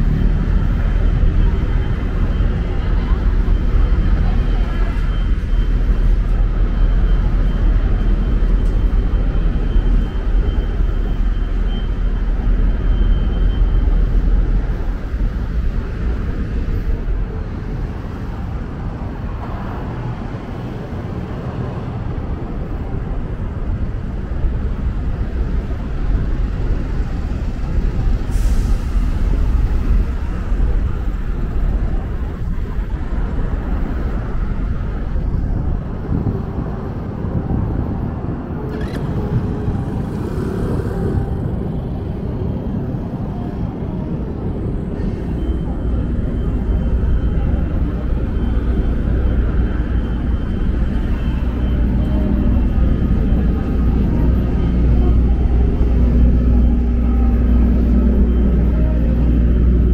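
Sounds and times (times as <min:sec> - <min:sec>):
street traffic rumble: 0:00.0 - 0:59.9.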